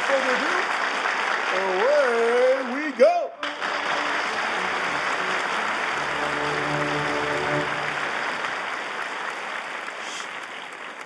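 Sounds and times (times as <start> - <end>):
audience applauding: 0.0 - 11.0
held musical notes: 3.4 - 8.7.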